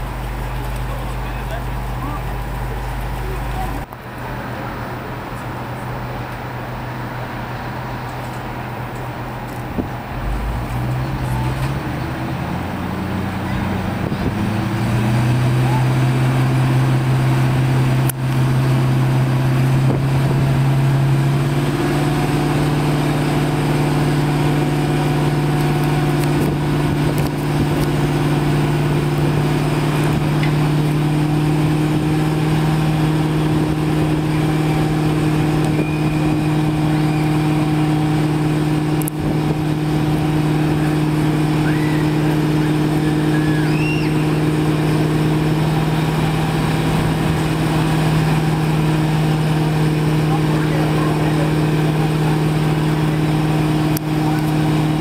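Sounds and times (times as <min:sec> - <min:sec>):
fire engine motor running: 0:00.0 - 0:55.0.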